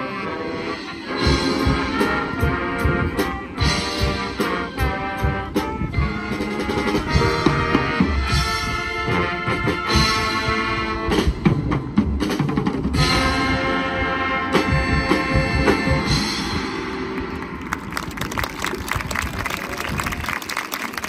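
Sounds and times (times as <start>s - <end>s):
brass chords: 0.0s - 11.9s, 12.9s - 17.6s
marching drums: 1.0s - 18.4s.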